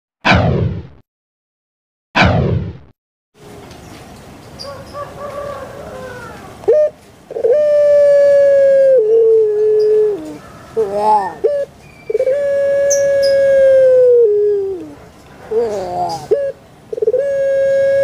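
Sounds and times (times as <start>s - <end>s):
dove cooing: 4.6s - 18.0s.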